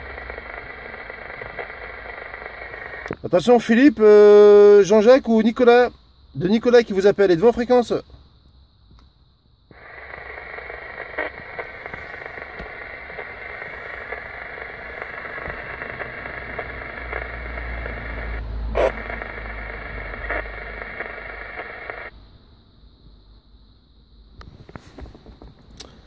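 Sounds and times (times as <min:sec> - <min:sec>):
radio static hiss: 0:00.0 - 0:08.2, 0:09.6 - 0:22.2
sharp clicks: 0:09.7 - 0:22.1.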